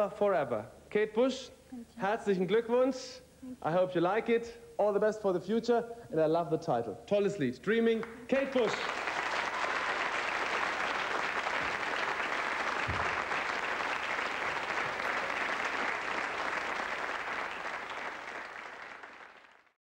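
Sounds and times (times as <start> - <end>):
studio audience applauding: 8.0 - 19.8.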